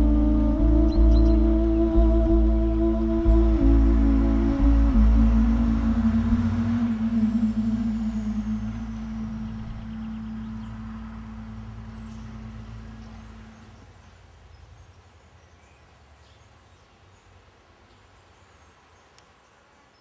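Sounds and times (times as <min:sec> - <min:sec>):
low rumbling drone: 0:00.0 - 0:14.8
faint hiss: 0:00.0 - 0:20.0.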